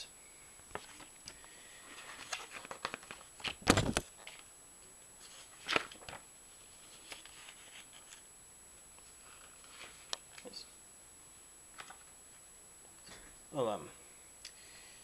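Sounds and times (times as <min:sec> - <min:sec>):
paper pages turning: 0:01.9 - 0:04.4, 0:05.2 - 0:06.2, 0:06.8 - 0:08.2, 0:09.0 - 0:10.5.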